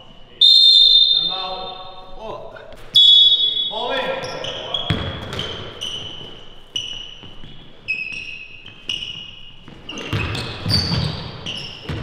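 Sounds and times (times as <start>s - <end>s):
sneakers squeaking on hardwood: 2.8s - 12.0s
basketball bouncing: 4.8s - 6.4s, 8.7s - 12.0s.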